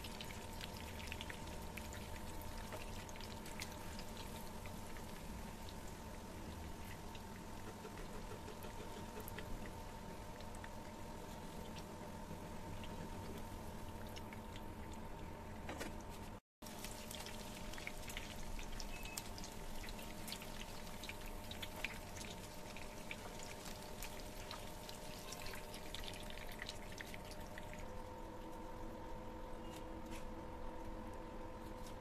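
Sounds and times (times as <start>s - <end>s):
steady low hum: 0.0s - 32.0s
chicken sizzling in hot oil: 16.6s - 27.5s.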